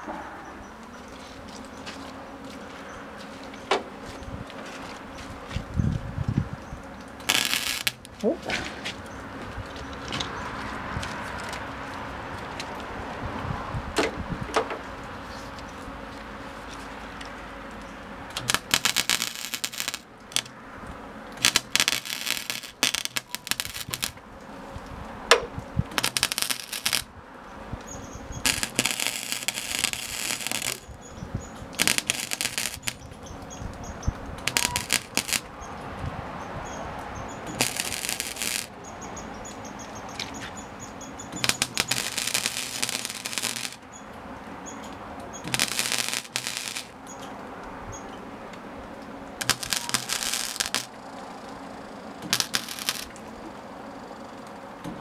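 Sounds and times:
welder crackling: 6.9s - 9.1s, 17.4s - 20.6s, 21.3s - 27.2s, 27.8s - 35.6s, 37.3s - 44.1s, 44.8s - 47.3s, 49.3s - 51.1s, 52.1s - 53.3s.

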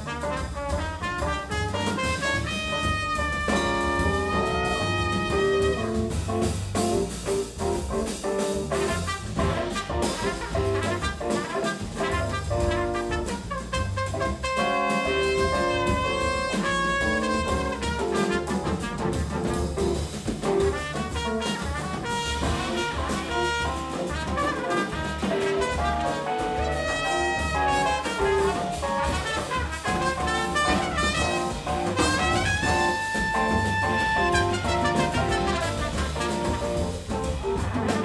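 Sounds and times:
trumpet: 0.0s - 6.3s, 8.7s - 19.9s, 20.6s - 38.0s
live jazz band playing: 0.0s - 38.0s
held brass note: 1.4s - 6.1s, 14.0s - 18.9s, 21.0s - 36.6s.

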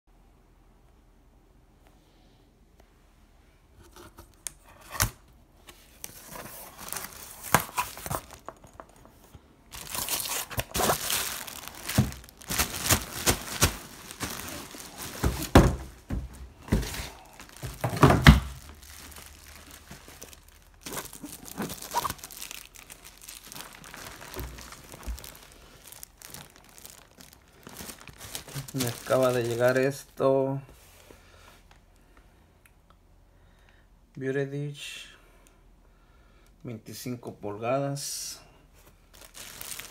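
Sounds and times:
plastic wrap crinkling: 5.9s - 9.1s, 9.7s - 30.2s, 39.0s - 39.9s.

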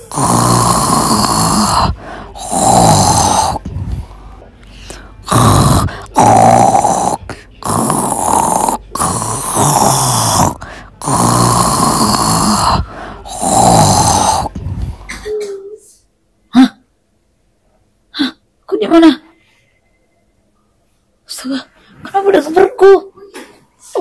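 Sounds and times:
woman snoring loudly: 0.0s - 4.2s, 5.2s - 15.2s.

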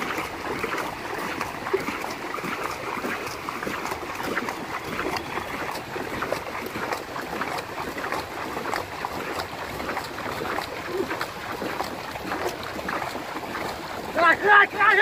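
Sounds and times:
paddles splashing in water: 0.0s - 15.0s.

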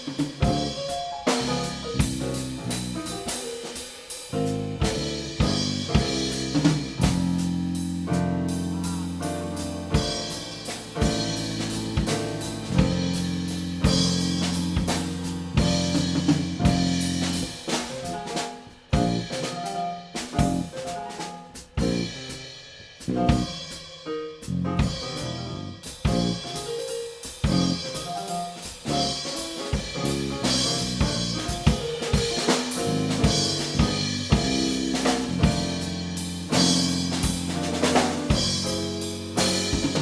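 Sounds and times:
drum kit beat: 0.0s - 40.0s
keyboard low line: 4.4s - 22.3s.

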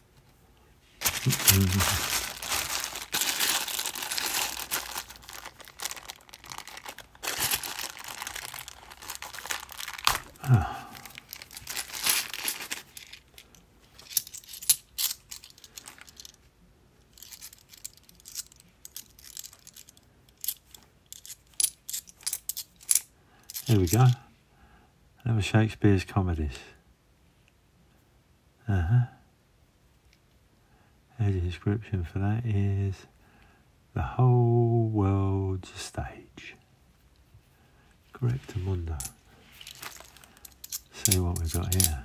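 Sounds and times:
plastic bag crinkling and tearing: 1.0s - 13.4s, 39.5s - 42.0s
coins clicking together: 17.2s - 24.2s, 40.4s - 42.0s.

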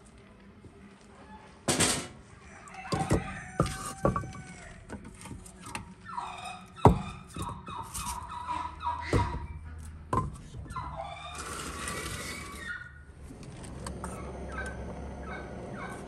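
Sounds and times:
dull wooden knocks: 2.9s - 5.9s, 6.8s - 7.7s, 10.1s - 10.7s
log scraping on oven floor: 11.3s - 12.7s.

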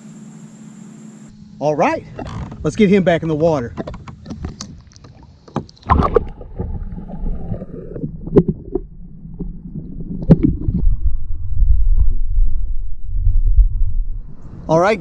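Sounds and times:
underwater water sloshing: 1.9s - 14.6s
underwater splash-like thump: 5.6s - 7.0s.

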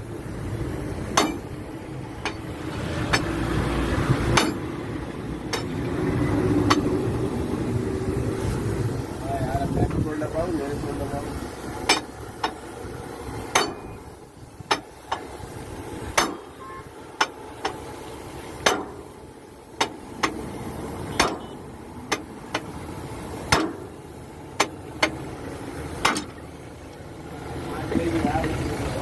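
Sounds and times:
steel bar clinking on wheel hub: 1.1s - 1.5s, 4.3s - 4.7s, 5.5s - 5.8s, 13.5s - 14.0s.

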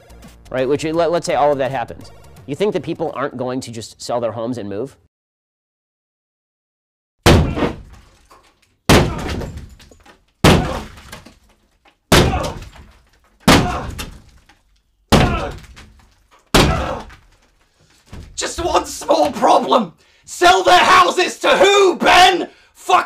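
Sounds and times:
drywall being smashed: 7.2s - 19.6s
debris falling: 7.3s - 19.4s.

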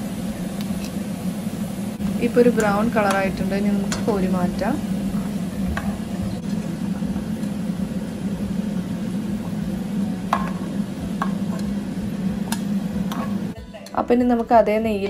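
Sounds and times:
faint sizzling: 0.0s - 15.0s
steady low hum: 0.0s - 15.0s
metal spoon tapping a pan: 2.5s - 4.4s, 5.7s - 6.6s, 10.3s - 11.8s, 12.4s - 15.0s.

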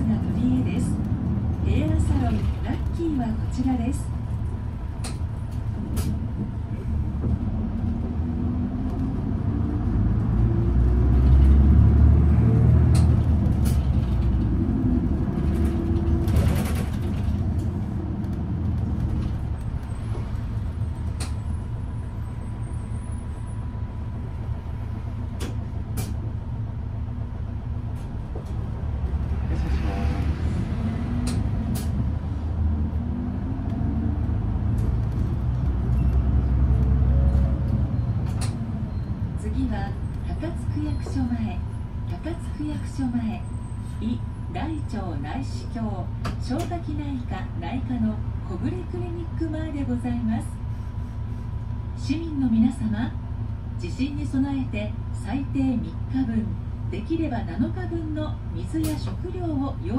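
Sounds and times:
bus engine from inside: 0.0s - 59.9s.

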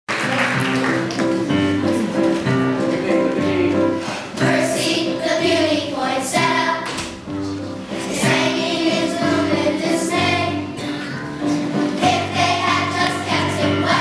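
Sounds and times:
children's chorus singing: 4.2s - 7.2s, 7.9s - 14.0s.

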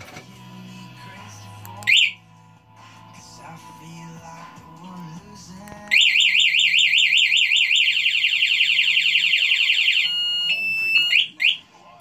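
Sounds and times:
alarm siren warbling: 5.9s - 11.7s
steady high beeping tone: 9.4s - 11.6s.

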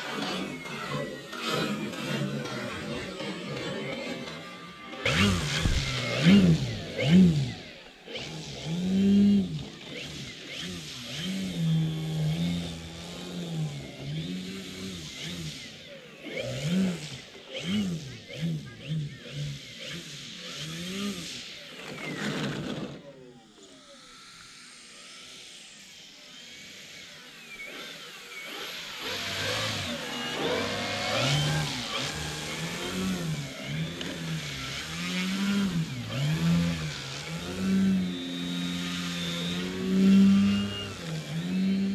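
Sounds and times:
electric motor and propeller whine: 0.0s - 41.9s.

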